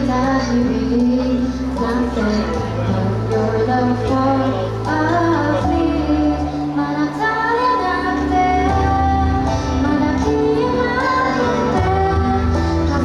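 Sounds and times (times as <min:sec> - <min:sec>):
instrumental music with bass: 0:00.0 - 0:13.0
woman singing pop song: 0:00.0 - 0:13.0.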